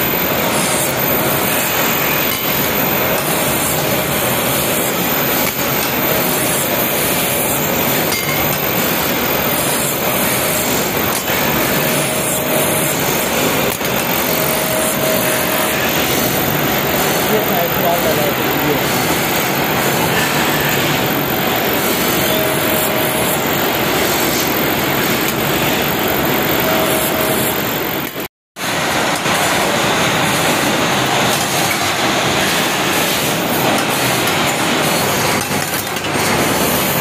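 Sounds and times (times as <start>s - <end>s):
drill boring into brass: 0.0s - 28.1s
lathe running: 0.0s - 37.0s.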